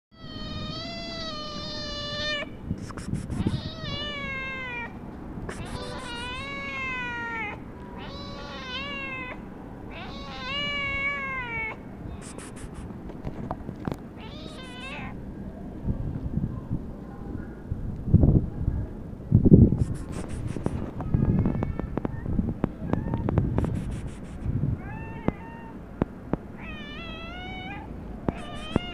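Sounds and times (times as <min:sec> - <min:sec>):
cat meowing: 0:00.2 - 0:02.6, 0:03.3 - 0:12.8, 0:14.2 - 0:15.2, 0:24.8 - 0:25.8, 0:26.6 - 0:28.9.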